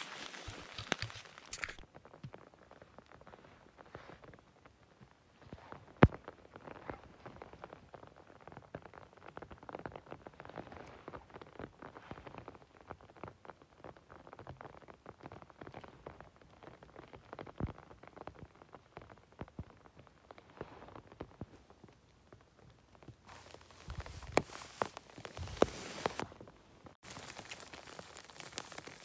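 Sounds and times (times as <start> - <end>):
rustling in wet moss: 0.0 - 1.8, 23.3 - 26.3, 27.0 - 29.0.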